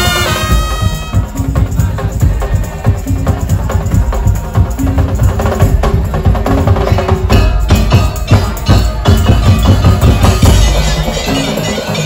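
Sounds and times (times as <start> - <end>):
drums in a fast beat: 0.0 - 12.0.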